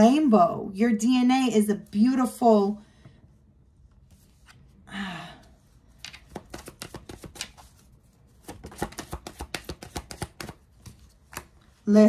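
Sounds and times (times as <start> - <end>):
cards being shuffled: 5.9 - 11.8.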